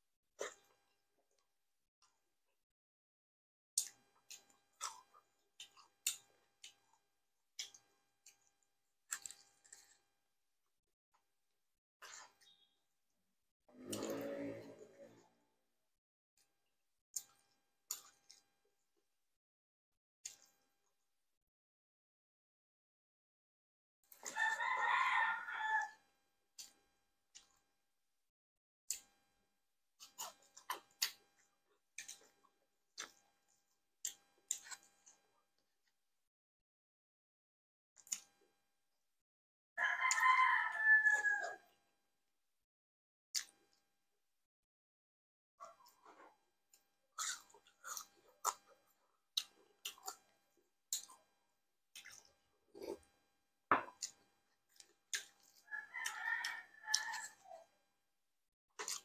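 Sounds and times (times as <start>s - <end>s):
wet chewing and smacking: 0.4s - 2.3s, 3.8s - 10.2s, 12.0s - 12.8s, 16.4s - 18.6s, 20.2s - 20.8s, 26.6s - 27.7s, 28.9s - 29.2s, 30.0s - 36.0s, 38.0s - 38.4s, 39.9s - 40.8s, 43.4s - 43.9s, 45.6s - 53.2s, 53.8s - 57.7s, 58.8s - 59.0s
slurp of broth: 13.8s - 15.1s.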